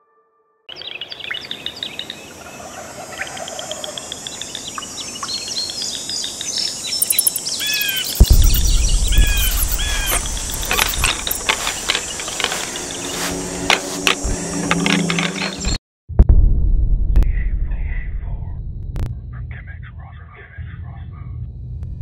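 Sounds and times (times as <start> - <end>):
birds chirping: 0.7 - 15.8
insects: 0.7 - 15.8
sharp clicks: 6.4 - 13.0
deep boom: 8.1 - 11.2, 16.1 - 19.8.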